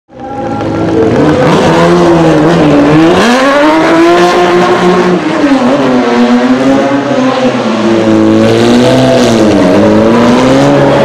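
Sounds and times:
race car engine revving: 0.1s - 11.0s.

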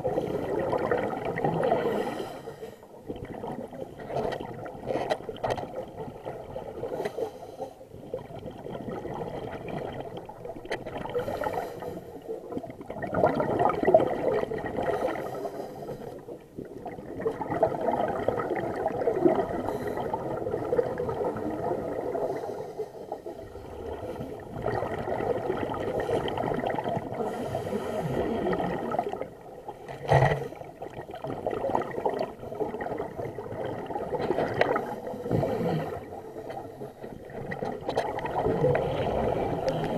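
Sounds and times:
gurgling exhaust bubbles: 0.0s - 2.0s, 12.7s - 15.2s, 23.5s - 27.2s
underwater regulator breathing: 1.6s - 2.9s, 6.8s - 7.9s, 11.0s - 12.3s, 14.8s - 16.3s, 27.1s - 28.8s, 35.0s - 37.1s.

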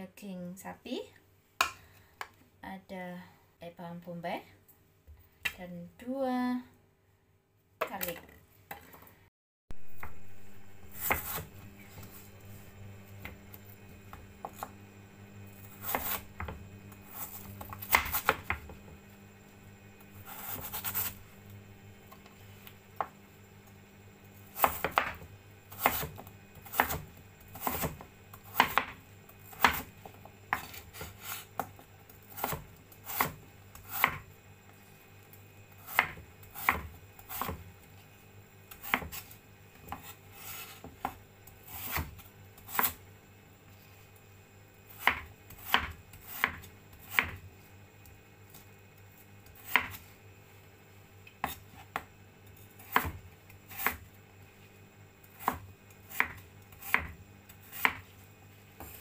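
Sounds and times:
cleaver chopping on wooden board: 17.7s - 18.8s, 24.6s - 25.2s, 25.8s - 29.9s, 35.9s - 37.6s, 45.0s - 47.4s, 49.6s - 50.0s, 52.9s - 54.0s, 55.4s - 58.0s.

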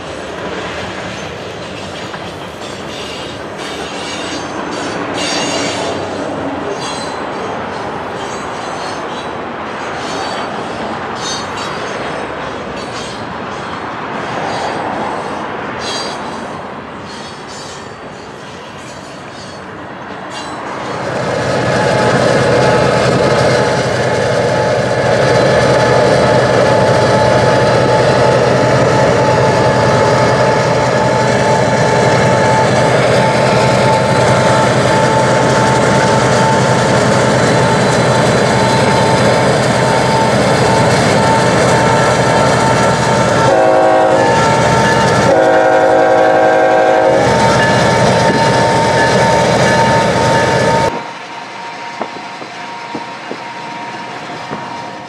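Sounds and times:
diesel locomotive running: 0.0s - 55.0s
locomotive air horn blasts: 40.0s - 51.0s.

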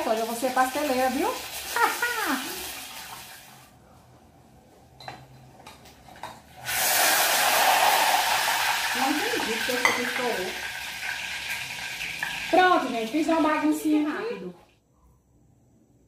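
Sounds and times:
hot oil sizzling: 0.0s - 3.7s, 6.5s - 14.5s.

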